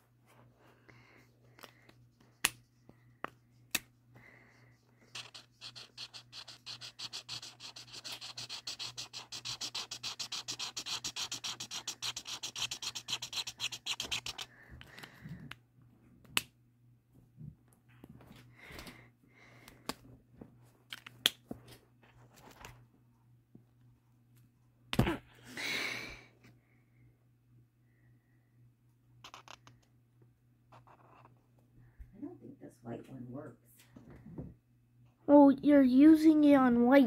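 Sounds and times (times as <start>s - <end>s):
marker scribbling on paper: 4.7s - 14.5s.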